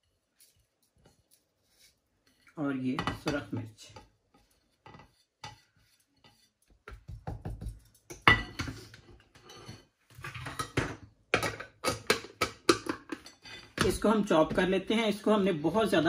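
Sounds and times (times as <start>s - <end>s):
plate clattering on countertop: 6.3s - 14.0s.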